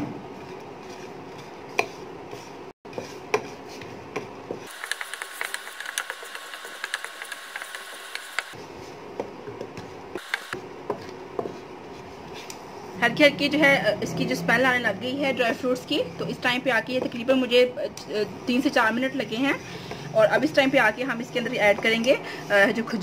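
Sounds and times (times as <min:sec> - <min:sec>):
wooden spatula stirring nuts in pan: 0:02.4 - 0:08.5.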